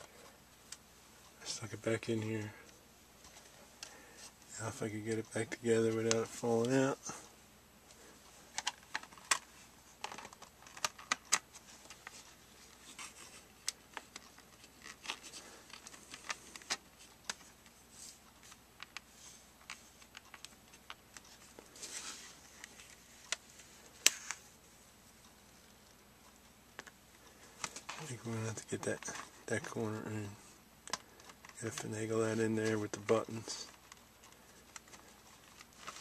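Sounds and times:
rubbing handling noises: 0.0 - 36.0.

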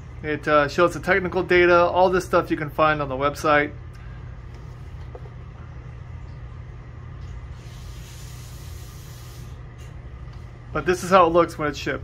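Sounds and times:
low background hum: 0.0 - 12.0
faint hiss: 7.5 - 9.9.

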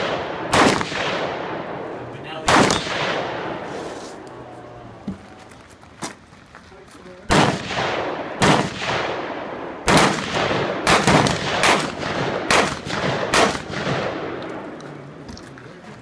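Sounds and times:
gunshots with long echo: 0.0 - 3.7, 7.3 - 14.8.

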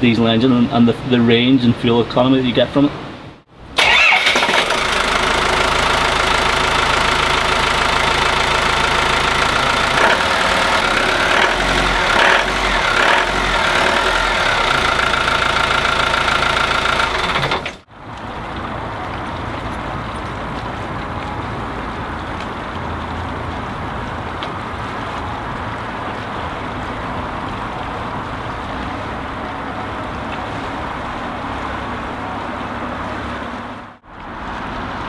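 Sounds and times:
diesel engine idling: 3.8 - 17.8.

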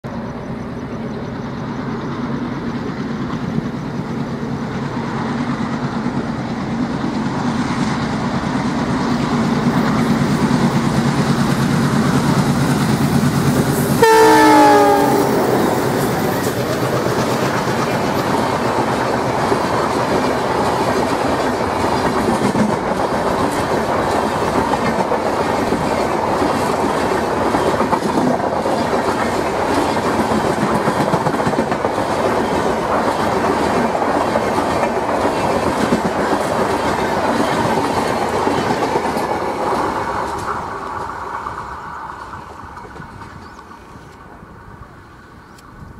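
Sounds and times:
diesel locomotive engines: 0.0 - 45.9
coaches rumbling and wheel clatter: 0.1 - 45.9
train horn blast: 14.0 - 16.2.

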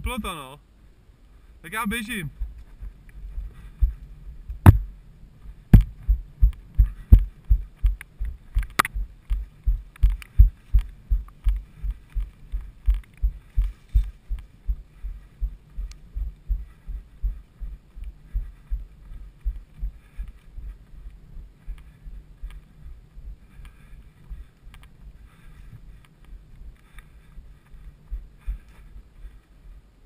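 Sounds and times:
running footfalls thudding: 3.8 - 4.9, 5.7 - 14.8
sharp knocks: 4.6 - 4.9.

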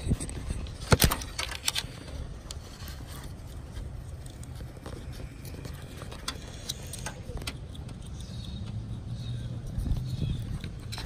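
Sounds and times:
wire rattles and clicks: 0.0 - 8.0
faint ticks and scrapes: 0.0 - 11.0.

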